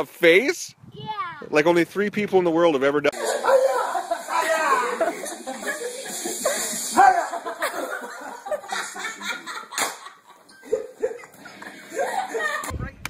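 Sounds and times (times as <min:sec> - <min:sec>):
people laughing and exclaiming: 0:03.1 - 0:12.9.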